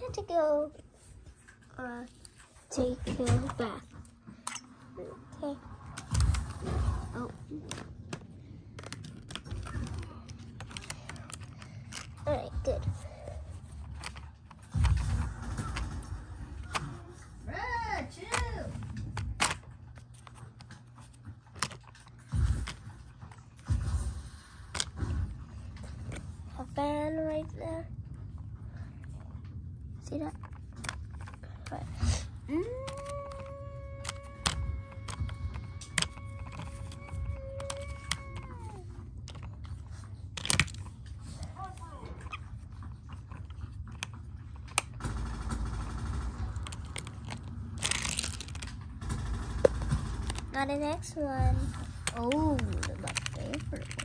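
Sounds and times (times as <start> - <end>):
plastic toy clicks: 32.5 - 39.6, 46.6 - 48.8, 51.8 - 54.0.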